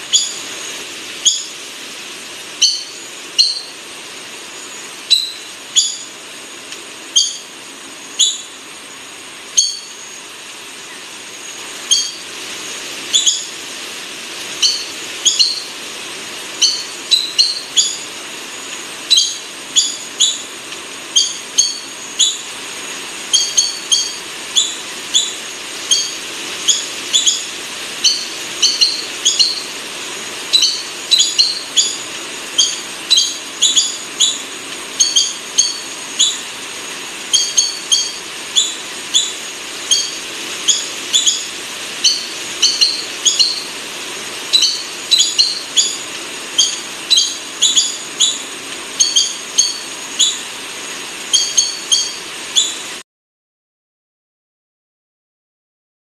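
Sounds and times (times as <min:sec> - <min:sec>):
bird calling high squeaky notes: 0:00.0 - 0:00.4, 0:01.2 - 0:01.6, 0:02.6 - 0:03.8, 0:05.1 - 0:06.1, 0:07.2 - 0:07.5, 0:09.6 - 0:10.1, 0:11.8 - 0:12.2, 0:13.1 - 0:13.5, 0:14.6 - 0:15.7, 0:16.6 - 0:18.1, 0:19.1 - 0:20.5, 0:21.2 - 0:22.5, 0:23.3 - 0:29.8, 0:30.5 - 0:36.5, 0:37.3 - 0:43.7, 0:44.5 - 0:50.5, 0:51.3 - 0:52.9
steady hiss: 0:00.0 - 0:53.0.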